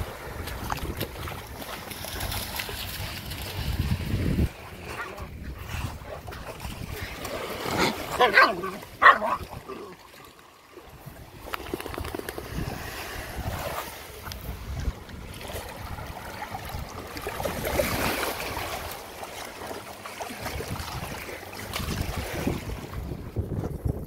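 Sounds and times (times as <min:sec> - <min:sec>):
small waves washing onto sand: 0:00.0 - 0:23.5
wind buffeting microphone: 0:03.1 - 0:07.9, 0:10.9 - 0:18.9, 0:20.4 - 0:24.0.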